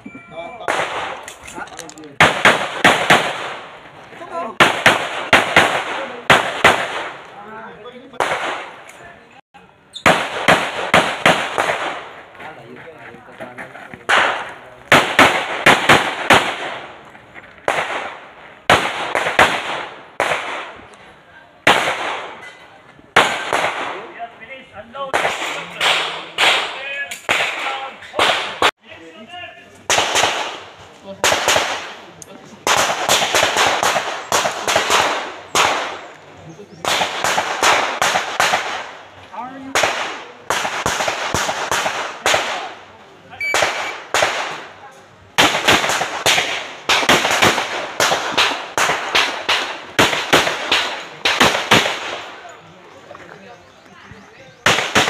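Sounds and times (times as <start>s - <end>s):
pistol shots with echo: 0.6s - 1.4s, 2.2s - 3.8s, 4.6s - 7.3s, 8.1s - 8.9s, 10.0s - 12.2s, 14.1s - 17.0s, 17.6s - 20.8s, 21.6s - 22.4s, 23.1s - 24.2s, 25.1s - 28.7s, 29.9s - 36.1s, 36.7s - 44.8s, 45.4s - 52.5s, 54.6s - 55.0s.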